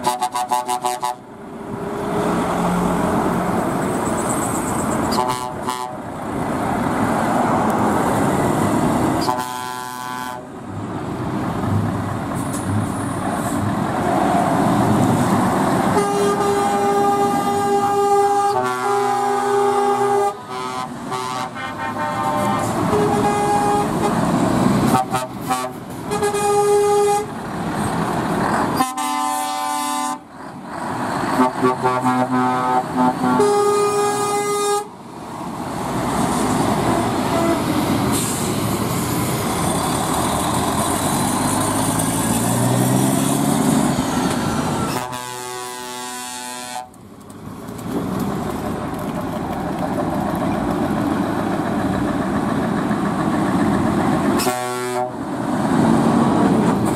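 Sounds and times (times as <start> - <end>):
truck air horns tooting: 0.0 - 1.3, 4.1 - 6.0, 9.2 - 10.5, 15.9 - 27.4, 28.7 - 30.3, 31.3 - 35.0, 36.8 - 38.5, 43.1 - 47.0, 54.4 - 55.2
heavy truck engines accelerating: 0.0 - 56.9.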